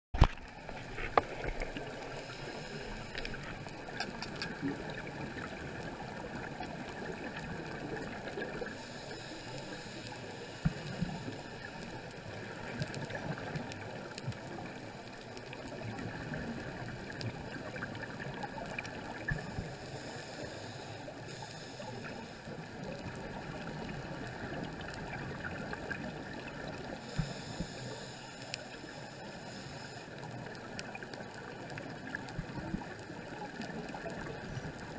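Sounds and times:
muffled underwater noise: 0:00.2 - 0:34.9
sharp underwater clicks: 0:03.0 - 0:04.9.

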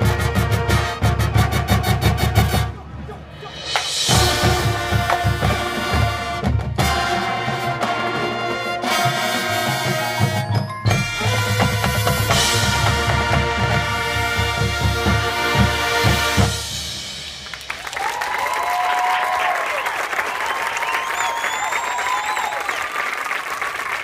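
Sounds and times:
marching band playing: 0:00.0 - 0:18.1
crowd applause and cheering: 0:10.8 - 0:24.0.

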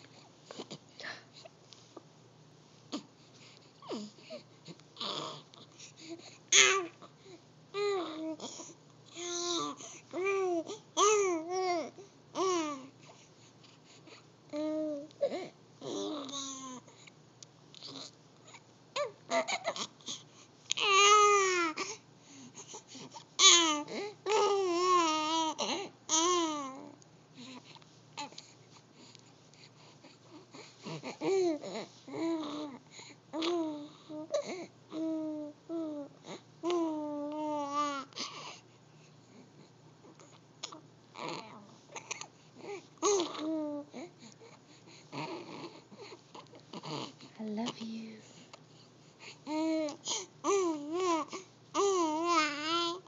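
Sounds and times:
baby cooing: 0:05.0 - 0:05.4, 0:06.5 - 0:07.1, 0:07.8 - 0:12.9, 0:15.8 - 0:16.8, 0:20.8 - 0:21.9, 0:23.4 - 0:27.0, 0:40.6 - 0:44.1, 0:49.5 - 0:53.0.

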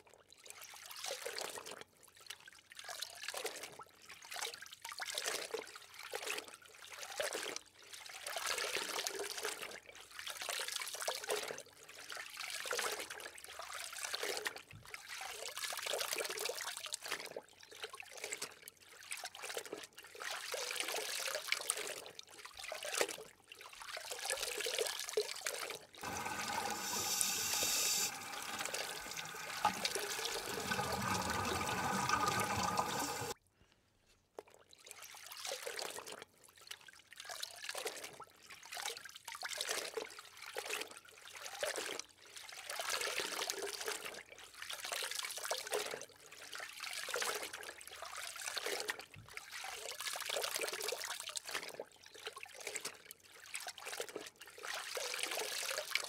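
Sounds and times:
water sloshing and bubbling: 0:26.0 - 0:33.4.

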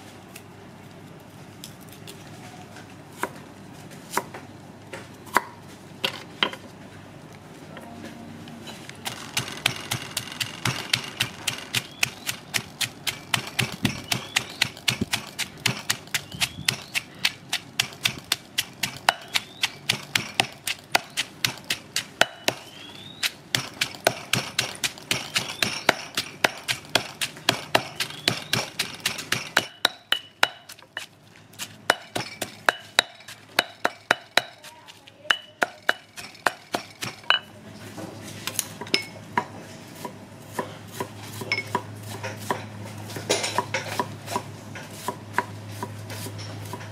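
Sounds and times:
pestle pounding in stone mortar: 0:09.0 - 0:37.5.

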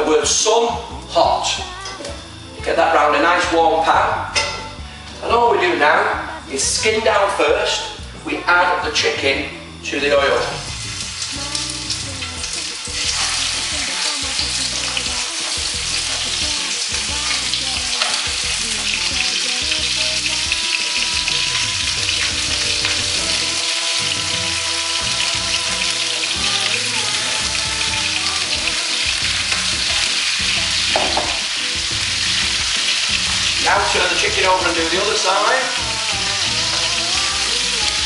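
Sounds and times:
chicken sizzling in oil: 0:09.0 - 0:38.0.

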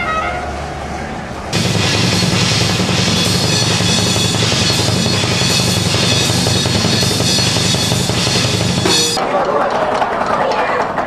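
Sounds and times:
drum kit solo: 0:01.6 - 0:09.2.

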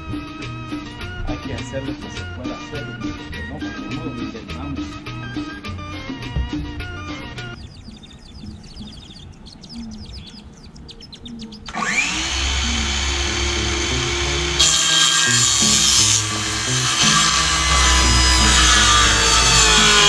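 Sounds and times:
background music with bass: 0:00.0 - 0:07.7, 0:11.8 - 0:20.0
power saw cutting wood: 0:11.7 - 0:20.0.

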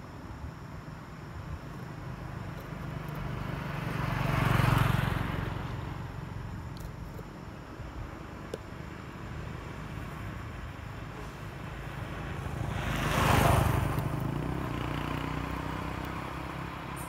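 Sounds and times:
vehicle passing by: 0:02.8 - 0:06.6, 0:11.0 - 0:17.0.

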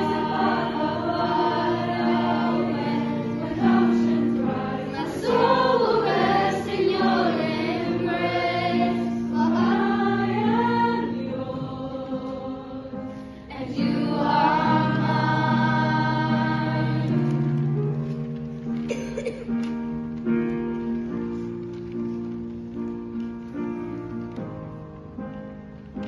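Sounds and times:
choir singing: 0:00.0 - 0:17.4.

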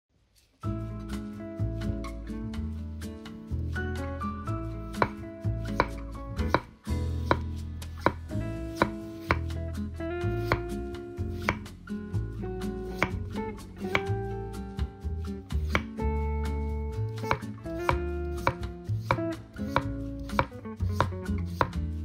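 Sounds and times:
background music: 0:00.6 - 0:22.0
knife tapping wooden board: 0:04.9 - 0:08.2, 0:11.4 - 0:11.7, 0:13.0 - 0:13.2, 0:15.6 - 0:16.0, 0:17.2 - 0:21.8
knife slicing potatoes: 0:04.9 - 0:09.6, 0:10.2 - 0:11.8, 0:12.7 - 0:14.4, 0:15.5 - 0:16.0, 0:17.1 - 0:22.0.

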